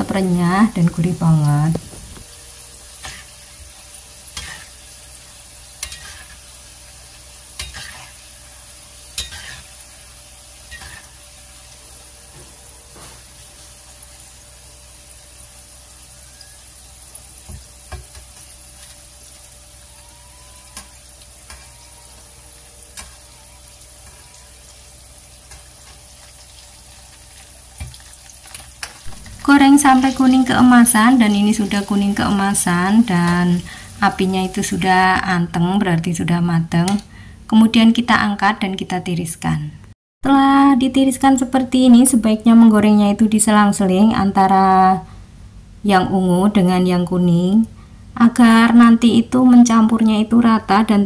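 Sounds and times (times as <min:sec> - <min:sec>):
food sizzling in hot oil: 0:00.0 - 0:36.3.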